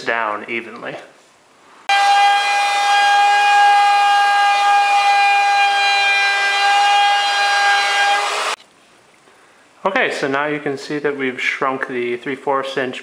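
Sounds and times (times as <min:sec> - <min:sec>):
wood router whining: 0:01.9 - 0:08.6.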